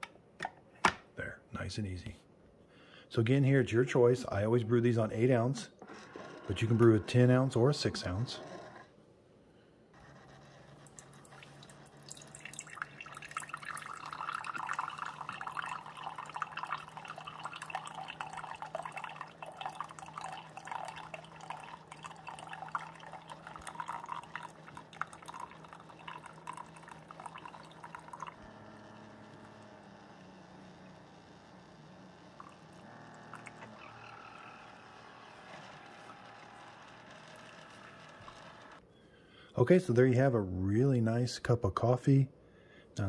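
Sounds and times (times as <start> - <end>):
coffee maker hum: 5.0 - 9.0, 9.9 - 38.9
coffee splashing into mug: 10.9 - 28.5, 32.4 - 33.7.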